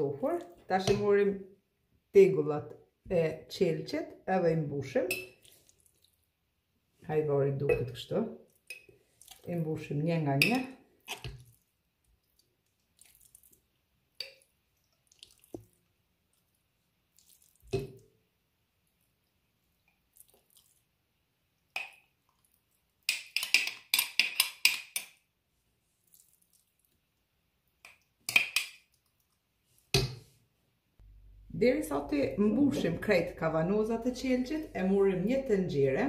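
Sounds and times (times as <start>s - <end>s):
spoon scraping and tapping jar: 23.1s - 25.2s, 27.9s - 28.8s.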